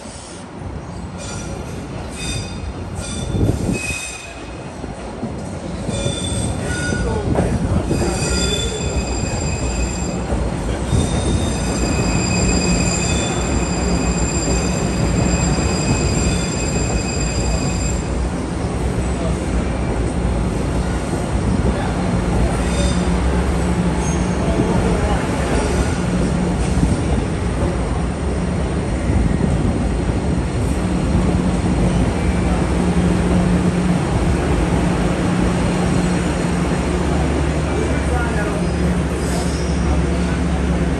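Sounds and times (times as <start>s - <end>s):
high-pitched train squeals: 0.0s - 4.6s, 5.8s - 7.2s, 7.9s - 18.2s, 22.5s - 23.2s, 24.0s - 24.5s, 38.7s - 40.2s
subway train rumble: 0.0s - 40.9s.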